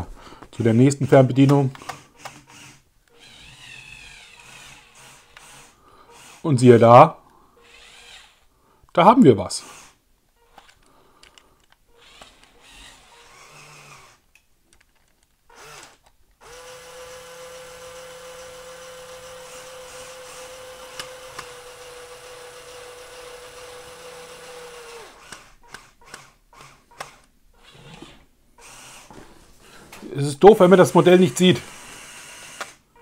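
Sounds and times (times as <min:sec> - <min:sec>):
small electric motor humming: 0:01.9 - 0:06.4, 0:07.6 - 0:08.4, 0:11.9 - 0:14.2, 0:15.5 - 0:29.2, 0:31.6 - 0:33.0.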